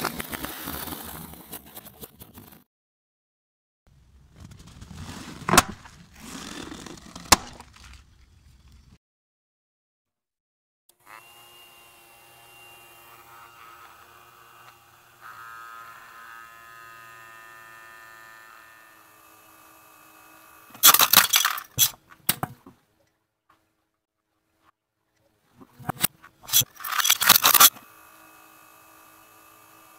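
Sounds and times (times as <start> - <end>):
toy fan motor humming: 11.0 - 21.8, 26.5 - 29.9.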